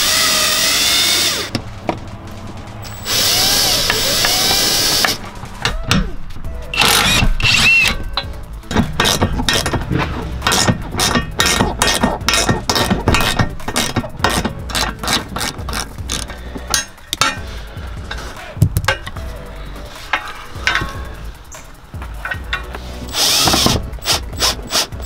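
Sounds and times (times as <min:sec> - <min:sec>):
socket ratchet clicking: 0:20.6 - 0:25.0.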